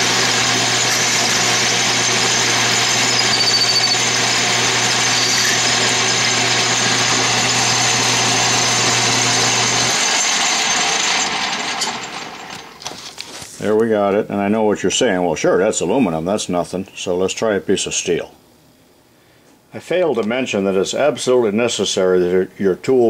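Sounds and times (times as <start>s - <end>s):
lathe running rattly: 0.0s - 12.8s.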